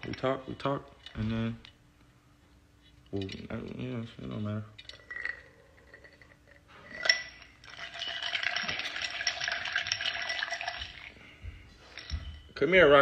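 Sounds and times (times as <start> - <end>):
ice cubes clinking in a glass: 6.9 - 11.2.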